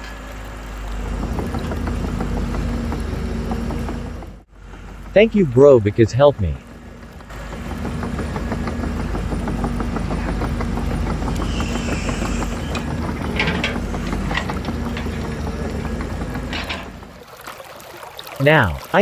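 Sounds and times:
model excavator tracks running: 0.0s - 17.4s
fast clicking: 6.6s - 16.7s.

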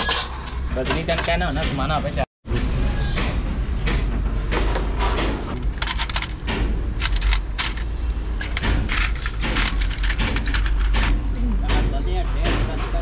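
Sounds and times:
metallic clinks and knocks: 5.6s - 13.0s.

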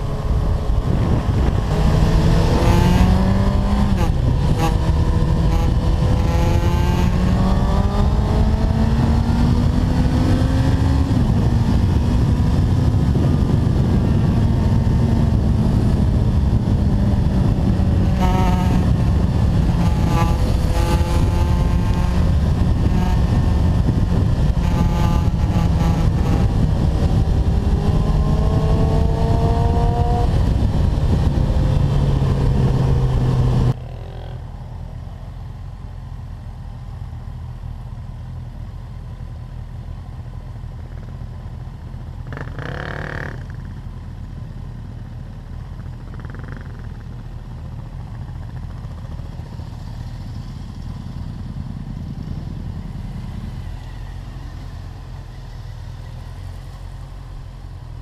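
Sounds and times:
wind rush: 0.0s - 33.8s
motorcycle accelerating: 0.0s - 36.4s, 39.6s - 58.0s
motorcycle engines idling: 33.8s - 58.0s.

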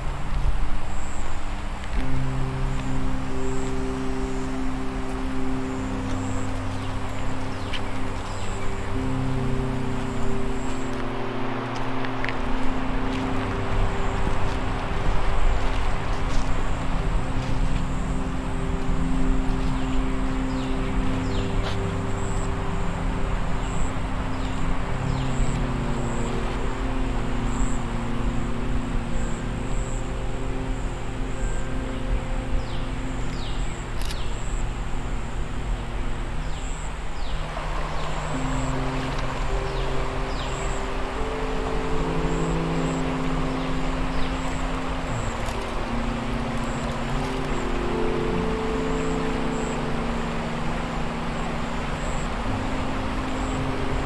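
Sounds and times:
creek water running over rocks: 0.0s - 54.0s
low synthesized drone: 2.0s - 54.0s.

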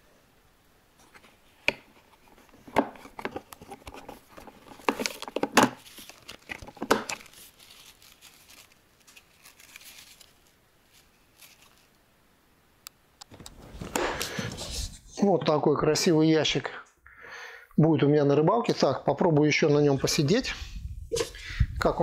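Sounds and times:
nylon strap rustling: 1.0s - 12.0s, 13.3s - 15.0s.

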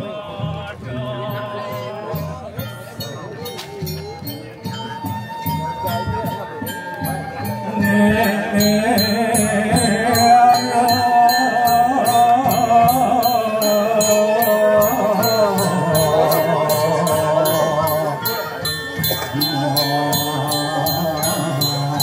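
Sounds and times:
bell rung in quick rhythm: 1.8s - 22.0s
chant in long wavering notes: 5.0s - 22.0s.

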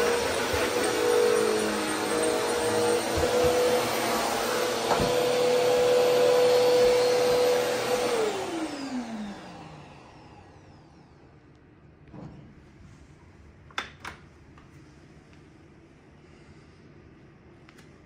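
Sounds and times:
vacuum cleaner motor whine: 0.0s - 11.4s.

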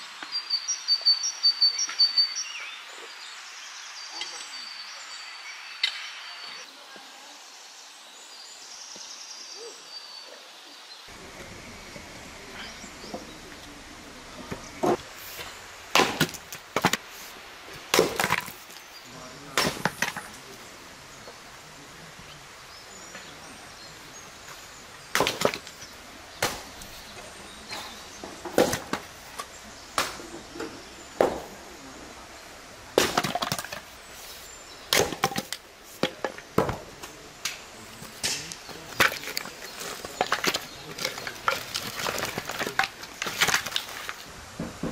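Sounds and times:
axe chopping firewood: 14.5s - 17.0s, 17.9s - 18.6s, 19.5s - 20.4s, 25.1s - 25.8s, 26.4s - 26.9s, 27.7s - 30.3s, 31.2s - 31.5s, 32.9s - 33.9s, 34.9s - 44.9s.

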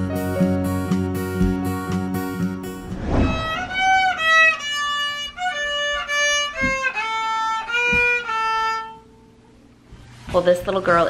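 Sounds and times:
violin melody: 2.3s - 9.2s.

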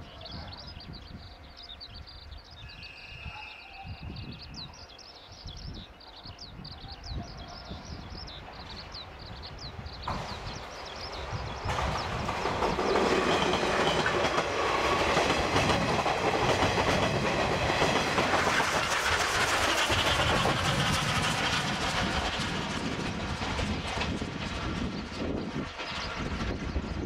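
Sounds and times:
train wheels rumbling on rails: 5.4s - 27.0s.

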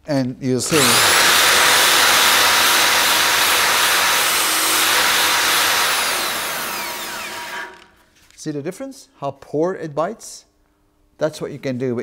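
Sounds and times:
drill wire brush scrubbing steel: 0.6s - 7.9s.

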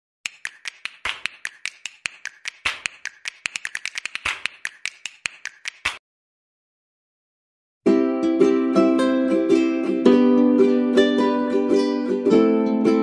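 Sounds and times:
sharp percussive clicks: 0.2s - 6.0s.

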